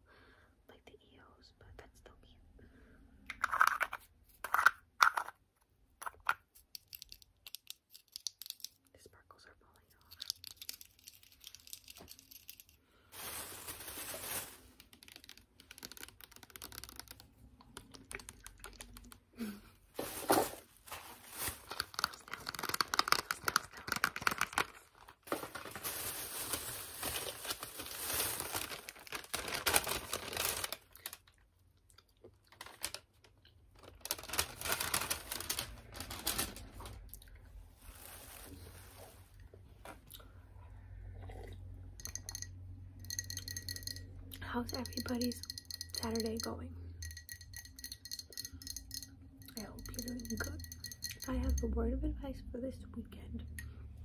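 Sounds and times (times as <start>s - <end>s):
plastic packaging crinkling and tearing: 10.2s - 17.2s, 20.0s - 31.4s, 32.3s - 37.2s, 37.8s - 39.2s.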